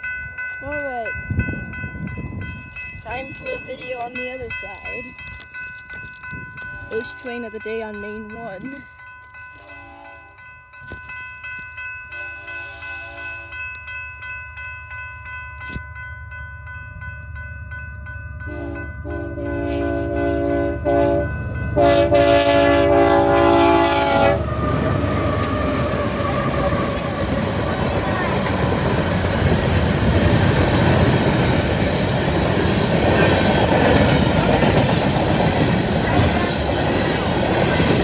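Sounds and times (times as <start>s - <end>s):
crossing bell ringing: 0.0s - 38.0s
locomotive horn blasts: 9.6s - 10.4s, 12.2s - 13.6s, 18.5s - 24.5s
train wheels rattling: 17.0s - 38.0s.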